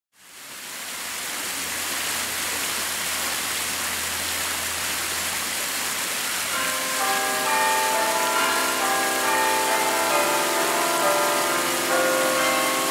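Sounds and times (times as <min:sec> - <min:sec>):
steady rain falling: 0:00.2 - 0:12.9
bell-like chime music: 0:06.5 - 0:12.9.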